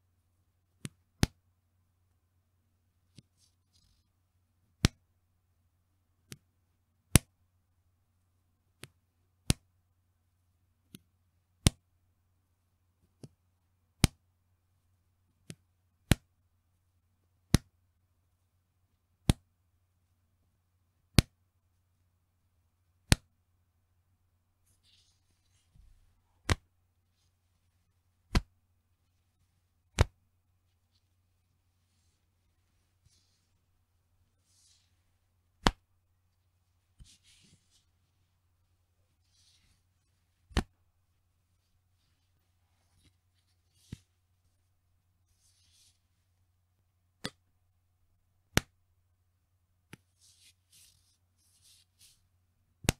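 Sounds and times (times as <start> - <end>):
elastic band snapping: 26.4 - 26.6, 28.3 - 28.5, 29.9 - 30.2, 35.6 - 35.9, 40.5 - 40.8, 48.5 - 48.7.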